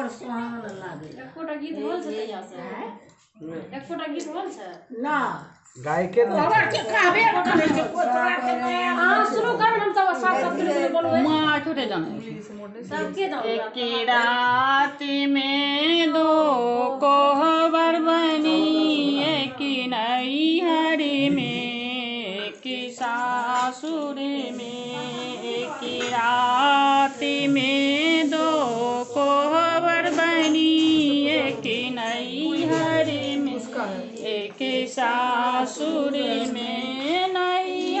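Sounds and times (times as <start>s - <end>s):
woman singing: 6.6s - 11.8s, 12.9s - 38.0s.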